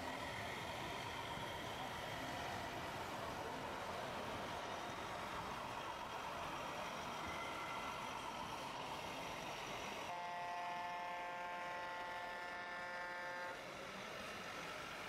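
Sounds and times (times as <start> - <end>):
truck air horn blast: 10.1 - 13.6.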